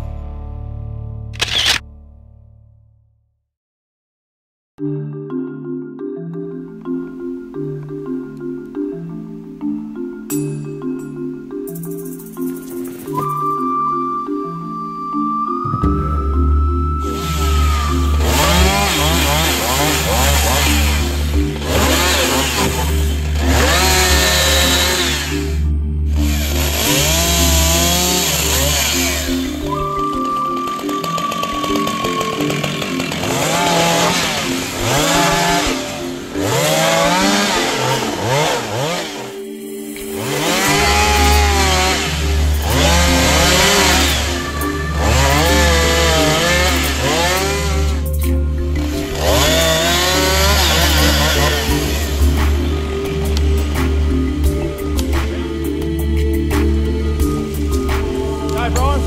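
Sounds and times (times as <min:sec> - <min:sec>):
background music with bass: 0:00.0 - 0:03.0, 0:04.8 - 0:59.0
chainsaw revving and cutting wood: 0:17.0 - 0:59.0.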